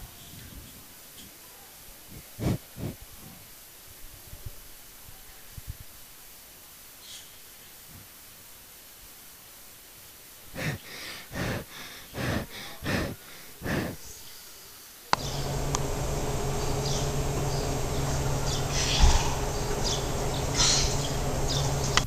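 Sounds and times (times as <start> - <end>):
short breathy puffs: 2.1 - 3.4, 10.5 - 14.5
outdoor background hum: 15.1 - 22.0.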